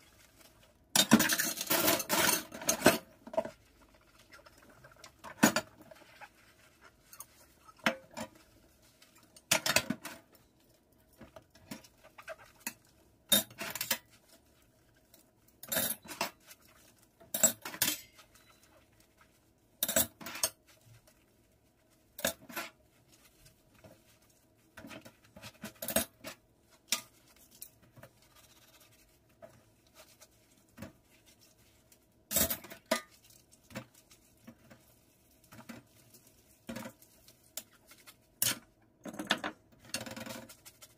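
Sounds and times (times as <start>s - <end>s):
dishes clinking in a steel sink: 1.0s - 3.1s, 9.4s - 10.2s, 17.3s - 18.6s
sponge scrubbing: 3.4s - 9.3s.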